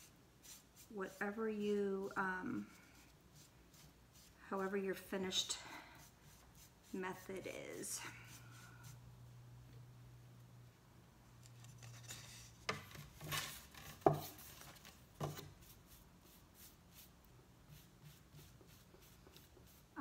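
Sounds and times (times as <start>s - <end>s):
sharp taps and scrapes: 11.4s - 15.6s.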